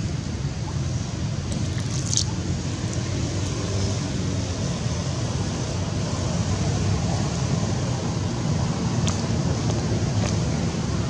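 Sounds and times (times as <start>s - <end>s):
low rumbling background noise: 0.0s - 11.0s.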